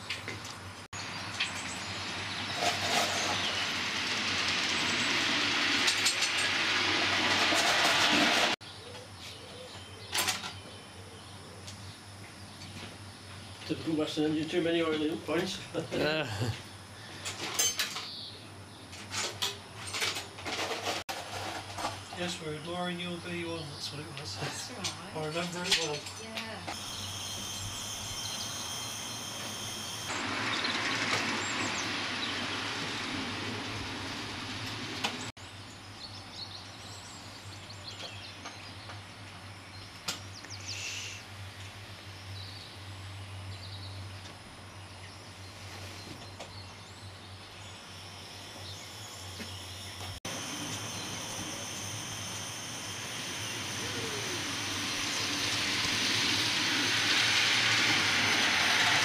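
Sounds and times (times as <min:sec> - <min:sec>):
steam locomotives hissing: 0:40.6 - 0:41.3, 0:50.2 - 0:59.0
low hum: 0:46.4 - 0:59.0.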